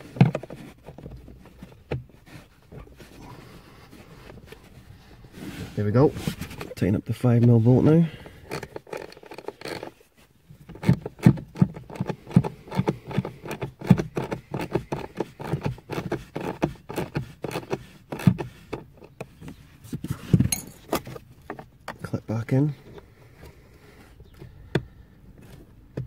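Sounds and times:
socket ratchet clicking: 8.4 - 9.9.

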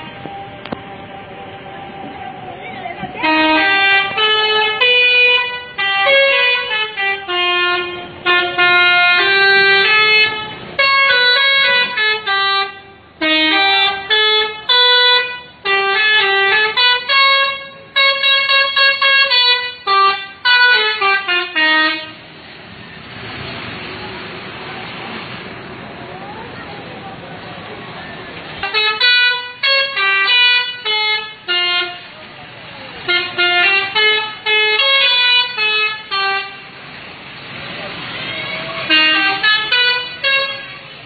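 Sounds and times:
musical air horn playing tunes: 3.2 - 22.3, 28.6 - 32.1, 33.0 - 36.8, 38.8 - 41.0.

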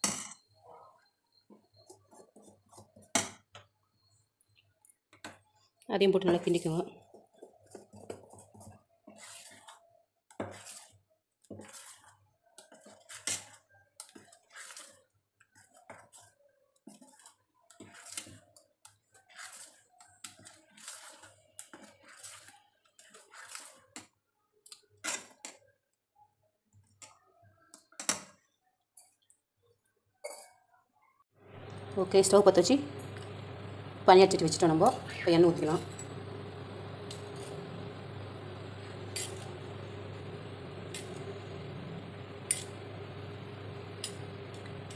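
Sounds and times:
metal spoon scraping steel bowl: 8.4 - 9.8, 10.4 - 11.0, 11.6 - 13.6, 19.3 - 23.8, 34.4 - 41.5, 42.3 - 42.9.

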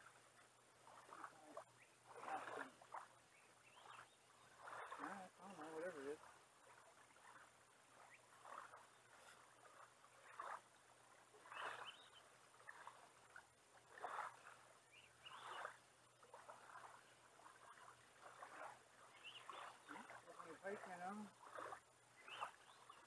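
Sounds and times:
water splashing at shoreline: 0.0 - 23.0.

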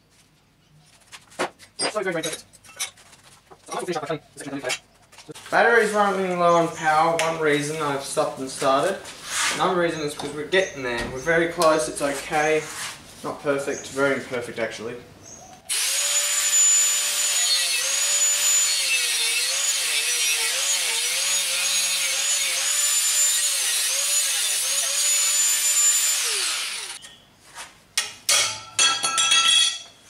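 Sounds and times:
angle grinder cutting steel: 15.7 - 27.0
metallic knocks and clinks: 28.0 - 30.0.

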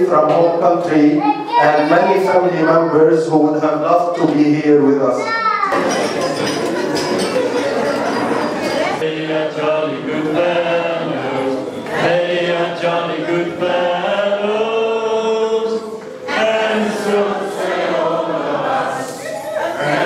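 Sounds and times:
group singing unaccompanied: 5.8 - 20.0.

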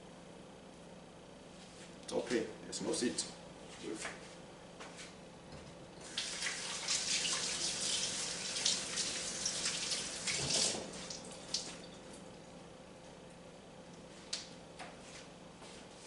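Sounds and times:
tap water running and splashing: 6.0 - 12.0.

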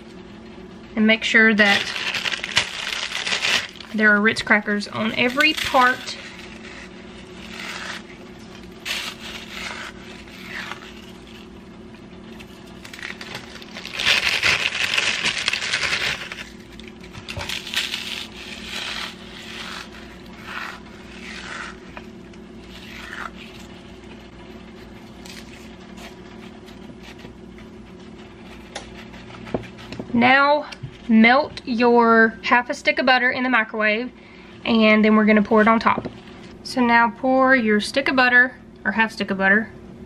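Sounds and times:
steady low hum: 0.0 - 40.0
crackers crunching: 1.6 - 4.0, 4.9 - 29.9.

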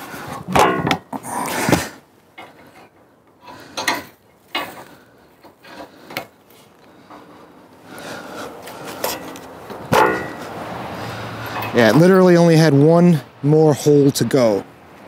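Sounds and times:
metal bracket scraping and clunking: 0.0 - 7.5, 8.5 - 12.1.

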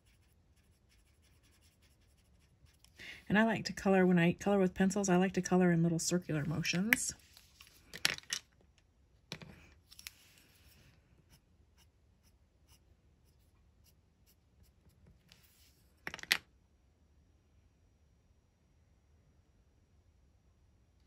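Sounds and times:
pencil scratching on paper: 0.0 - 3.0, 10.5 - 15.8.

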